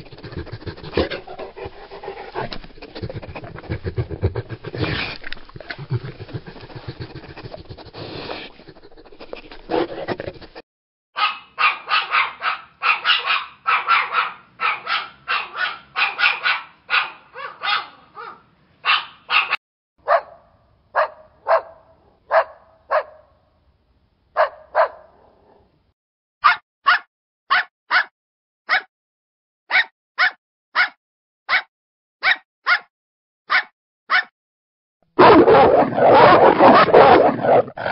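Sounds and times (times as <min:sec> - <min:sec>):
dog panting heavily: 0:00.0 - 0:10.6
small dogs yapping: 0:11.2 - 0:19.6, 0:35.2 - 0:37.9.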